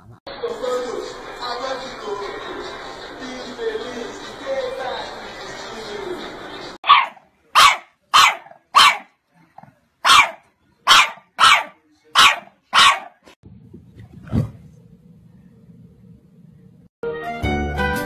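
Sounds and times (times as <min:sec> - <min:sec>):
puppy barking in high yaps: 0:06.8 - 0:09.1, 0:10.0 - 0:13.2.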